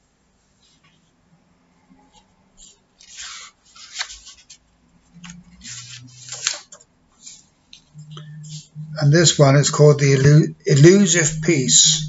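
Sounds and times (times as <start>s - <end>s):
paper rustling: 2.1s - 7.9s.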